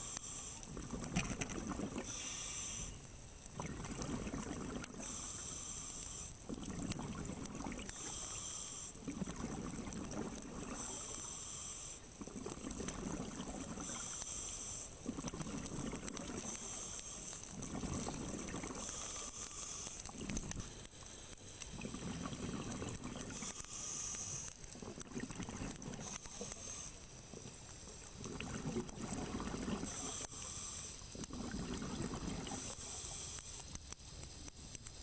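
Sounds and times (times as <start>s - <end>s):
regulator hiss on inhale: 0.0s - 0.9s, 2.0s - 3.2s, 5.0s - 6.5s, 7.9s - 9.2s, 10.6s - 12.6s, 13.4s - 24.9s, 25.9s - 27.5s, 29.3s - 31.6s, 32.2s - 35.0s
exhaled bubbles burbling: 0.7s - 2.1s, 3.5s - 5.1s, 6.5s - 8.0s, 9.0s - 11.0s, 12.2s - 14.0s, 15.0s - 16.6s, 17.5s - 18.9s, 20.1s - 20.6s, 21.7s - 23.4s, 24.7s - 26.2s, 27.3s - 30.1s, 31.2s - 32.7s.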